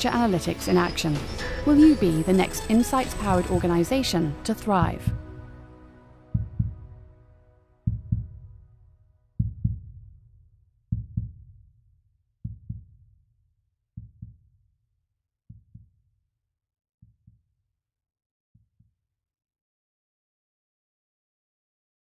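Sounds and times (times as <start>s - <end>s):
deep heartbeat-like thumps: 3.1s - 5.5s, 6.3s - 7.2s, 7.8s - 8.7s, 9.4s - 10.3s, 10.9s - 11.7s, 12.4s - 13.1s, 14.0s - 14.5s, 15.5s - 16.0s.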